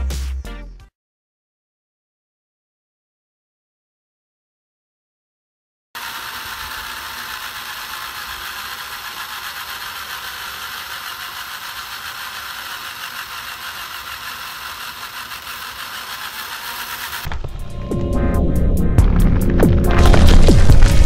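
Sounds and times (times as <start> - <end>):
plastic gears whirring and clicking: 6.0 - 17.5.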